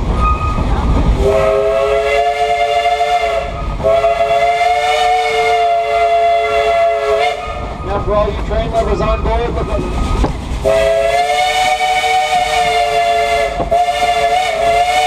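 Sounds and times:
train rumbling: 0.0 - 15.0
steam locomotive whistle: 1.2 - 8.0, 9.1 - 15.0.

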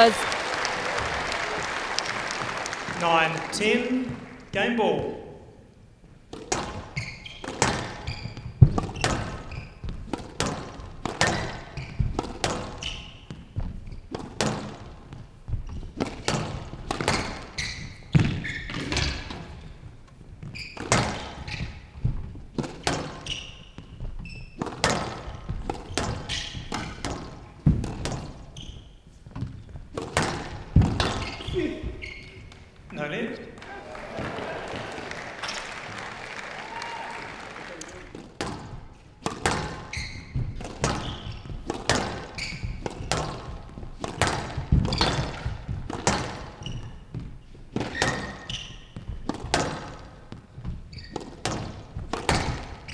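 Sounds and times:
shoes squeaking on wooden floor: 6.0 - 36.1, 37.9 - 52.9
squash ball hitting walls: 6.3 - 32.7, 38.2 - 52.9.

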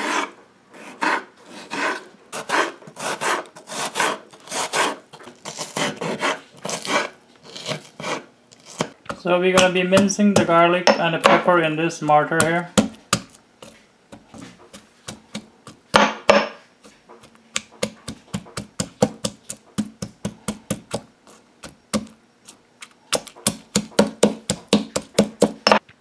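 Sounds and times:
pestle pounding in marble mortar: 8.8 - 25.9.

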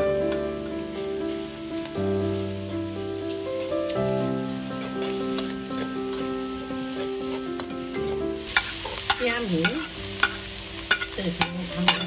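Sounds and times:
food sizzling in oil: 0.0 - 12.0
soft background music: 0.0 - 12.0
spatula scraping a wok: 3.2 - 12.0.

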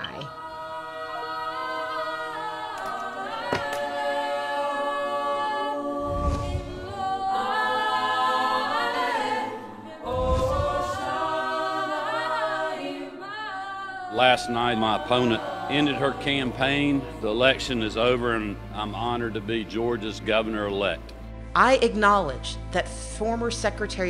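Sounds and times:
a cappella choir singing: 0.0 - 21.4.

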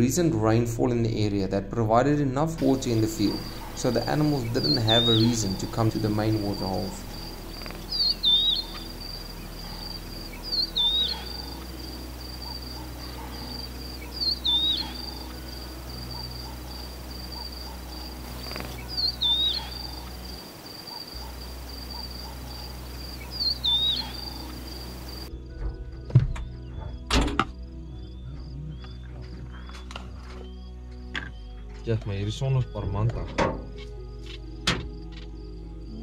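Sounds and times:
lark singing whistled phrase: 2.8 - 11.6, 12.2 - 25.2.

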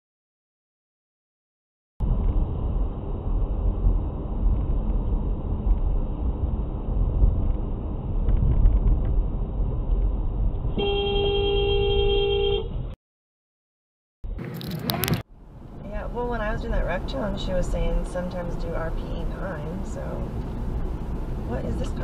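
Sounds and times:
road and engine rumble in car: 2.0 - 13.0, 14.3 - 22.0
car horn held: 10.8 - 12.8.

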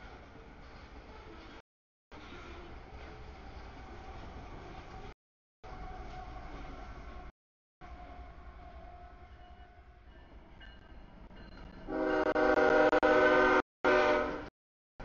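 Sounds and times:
freight train rumbling: 0.0 - 14.5
locomotive air horn: 11.9 - 14.5.

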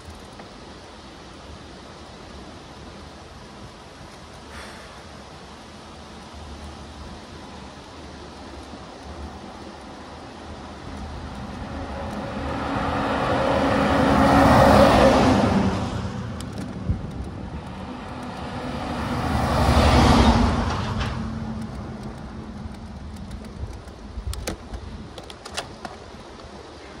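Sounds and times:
road and wind noise: 0.0 - 27.0
motor vehicles passing: 7.6 - 25.0.

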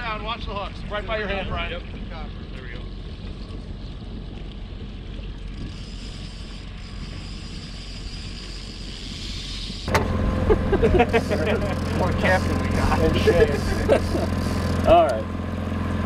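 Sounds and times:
outboard motor rumbling: 0.0 - 16.0
wind on microphone: 0.1 - 11.3
steady hum: 4.0 - 16.0.

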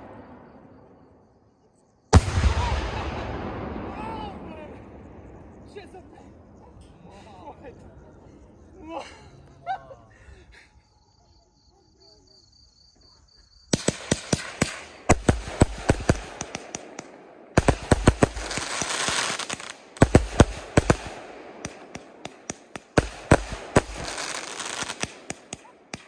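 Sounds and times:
fireworks banging: 0.0 - 1.0, 13.7 - 26.0
fireworks crackling: 2.1 - 6.5, 13.7 - 26.0.

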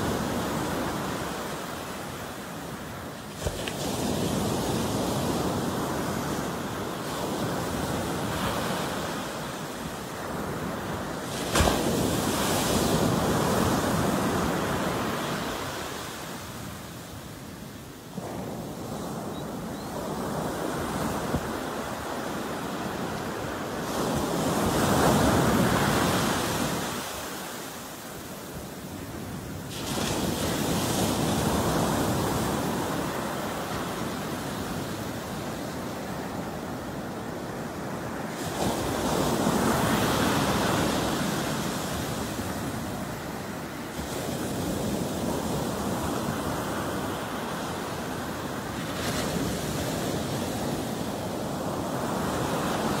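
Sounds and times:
ocean waves crashing on beach: 0.0 - 53.0.

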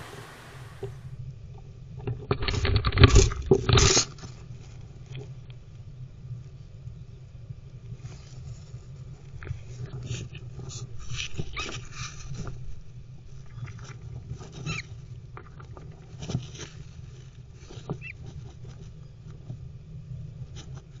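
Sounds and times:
steady low hum: 0.0 - 2.0.

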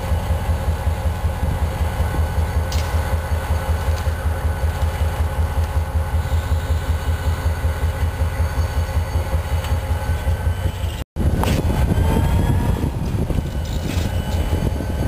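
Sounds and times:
diesel locomotive engine throbbing: 0.0 - 15.0.

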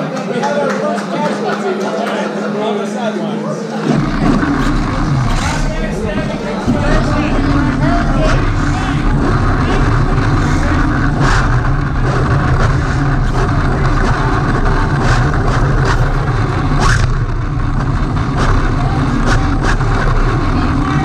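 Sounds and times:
toy car rumbling on concrete: 3.8 - 21.0.

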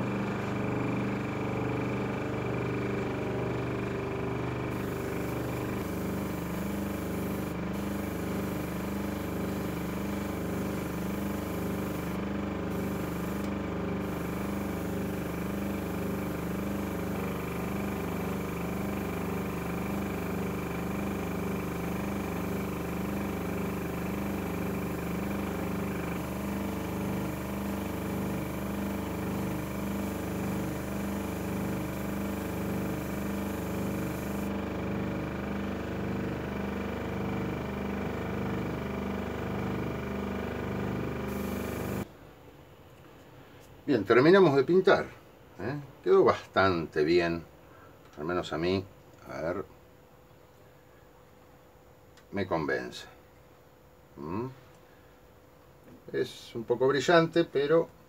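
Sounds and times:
electric motor hum: 4.4 - 42.1.

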